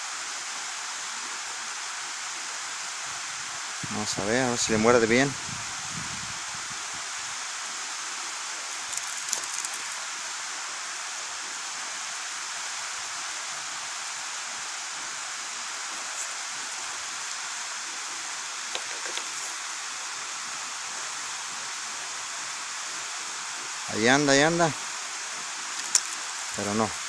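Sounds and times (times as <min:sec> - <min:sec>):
river water rushing: 0:07.0 - 0:27.0.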